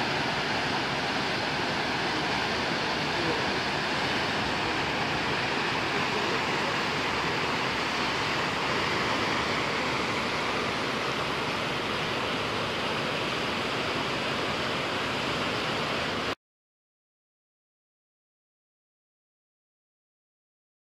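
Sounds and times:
water rushing through sluice gate: 0:00.0 - 0:16.4.

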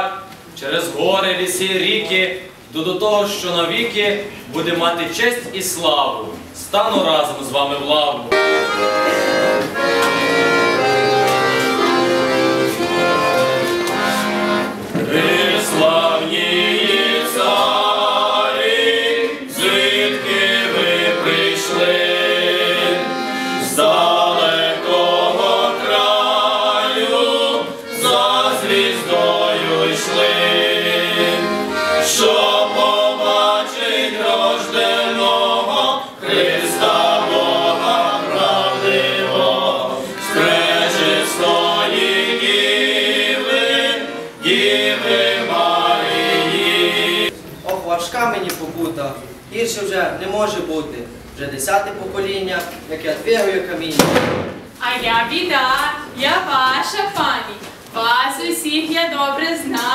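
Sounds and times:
piano accordion: 0:08.3 - 0:47.4
men singing a carol: 0:10.6 - 0:47.4.

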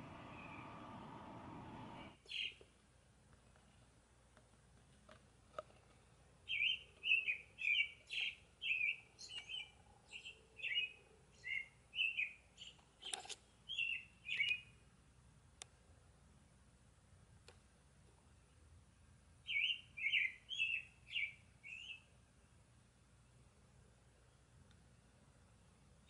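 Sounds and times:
bird singing slurred whistles: 0:06.5 - 0:12.4, 0:13.7 - 0:14.7, 0:19.5 - 0:22.1.

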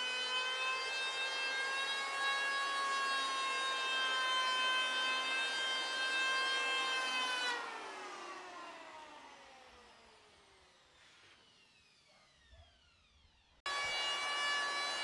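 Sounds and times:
electric hand planer whining: 0:00.0 - 0:10.7, 0:13.7 - 0:15.0.

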